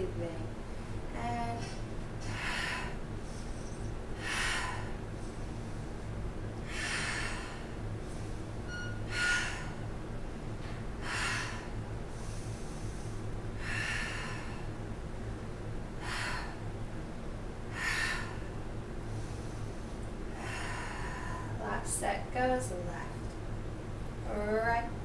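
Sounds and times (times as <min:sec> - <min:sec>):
woman breathing forcefully: 0:02.2 - 0:10.2, 0:10.9 - 0:17.0, 0:17.6 - 0:21.7.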